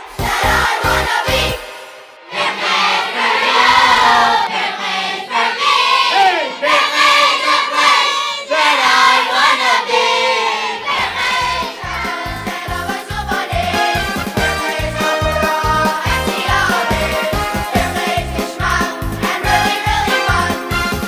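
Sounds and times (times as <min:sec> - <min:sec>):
boys' choir singing: 0:00.0 - 0:20.8
drum beat: 0:00.1 - 0:01.4, 0:11.4 - 0:21.0.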